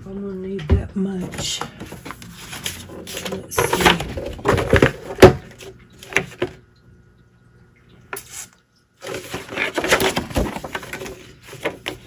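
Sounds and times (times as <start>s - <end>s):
paper rustling and sliding: 1.8s - 5.3s, 8.2s - 12.0s.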